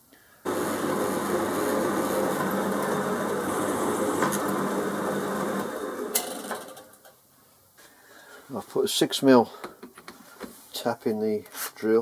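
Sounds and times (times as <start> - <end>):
drill press drilling into metal: 0.5 - 6.7.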